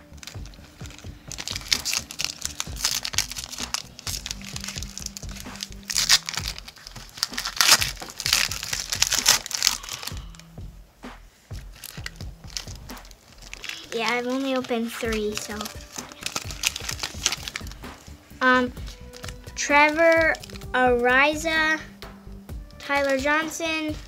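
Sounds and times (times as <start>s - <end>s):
plastic wrapper crinkling and tearing: 0.0s - 10.4s, 11.5s - 20.8s, 22.8s - 24.0s.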